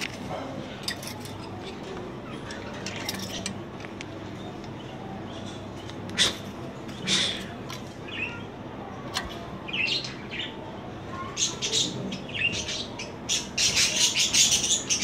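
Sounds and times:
beaks and claws clicking on wire: 0.0s - 4.1s.

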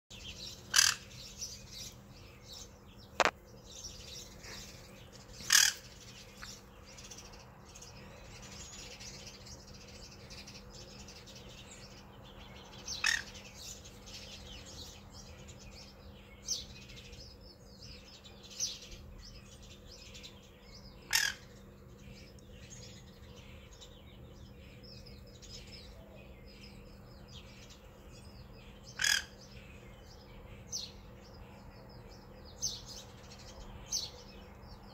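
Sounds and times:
sparrows chirping: 0.1s - 34.9s
parrot calling: 0.7s - 1.1s, 5.4s - 5.9s, 13.0s - 13.3s, 21.1s - 21.6s, 29.0s - 29.4s.

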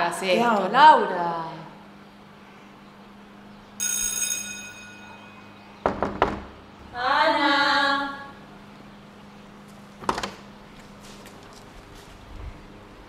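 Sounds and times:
electric doorbell ringing: 3.8s - 5.8s
knocks on wooden door: 5.8s - 6.6s.

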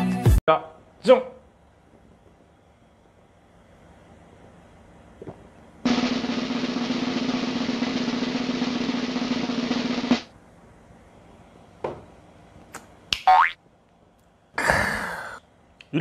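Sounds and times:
snare drum roll: 5.9s - 10.3s.

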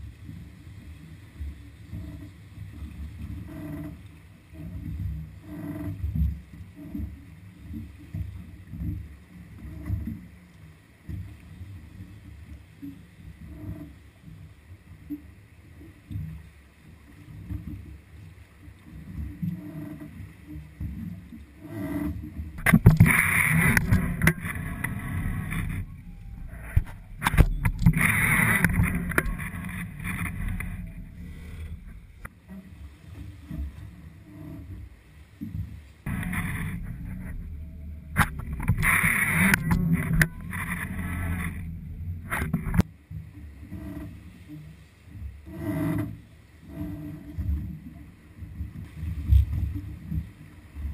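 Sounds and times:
water slapping against boat hull: 22.0s - 33.9s, 35.4s - 42.9s, 48.5s - 50.9s
steady low rumble: 22.3s - 44.4s.

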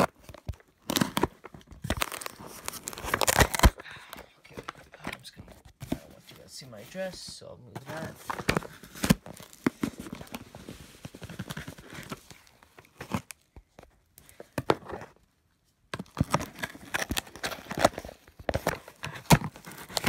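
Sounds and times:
cardboard box tearing and crinkling: 0.0s - 3.8s, 7.8s - 13.4s, 16.0s - 20.0s.

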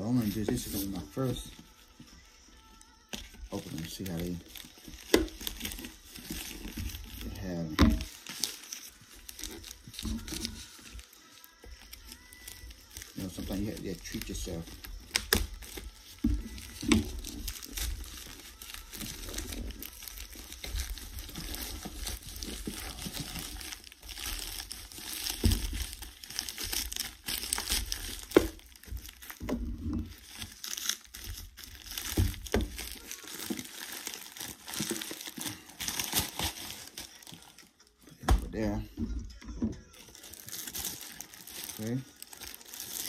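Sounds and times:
plastic bag crinkling: 0.0s - 38.8s, 39.8s - 43.0s.

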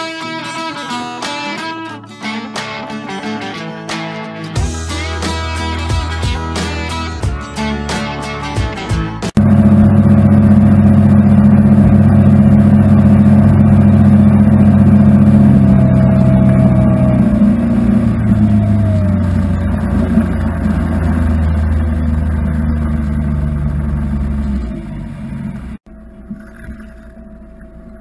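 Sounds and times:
outboard engine droning: 9.4s - 28.0s.

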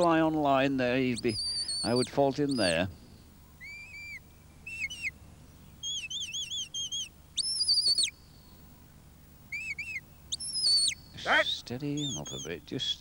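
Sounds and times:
person whistling commands: 10.7s - 12.5s.

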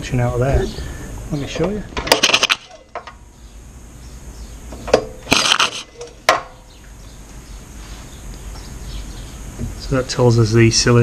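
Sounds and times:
pull-starter metallic clicking: 2.0s - 3.2s, 4.7s - 6.4s.

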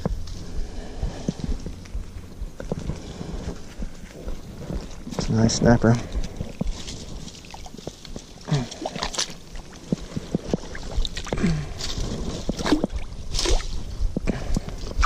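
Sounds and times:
pond water sloshing and splashing: 7.4s - 13.8s
short low grunts: 8.4s - 9.3s, 11.2s - 13.0s.

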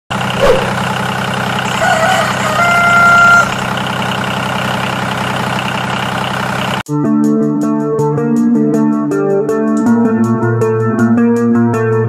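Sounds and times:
tractor engine running: 0.1s - 6.8s.

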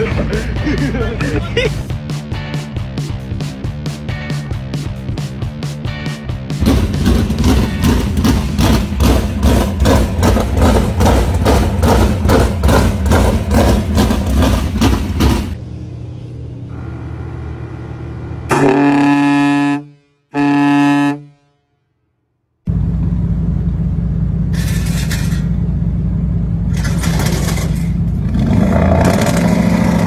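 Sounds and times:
loud pounding beat: 0.0s - 15.6s
truck air horn blasts: 18.5s - 22.0s.

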